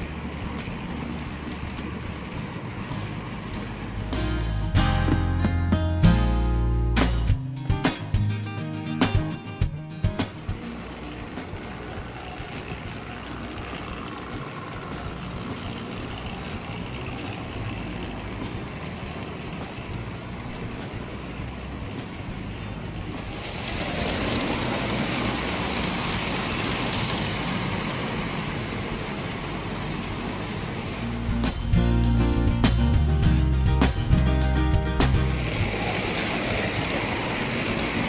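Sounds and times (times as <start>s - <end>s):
toy train rolling and rattling: 10.2s - 31.7s, 35.0s - 38.0s.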